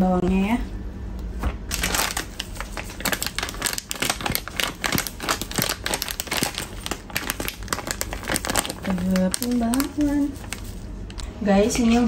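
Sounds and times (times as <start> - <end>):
plastic packet crinkling: 1.7 - 11.2.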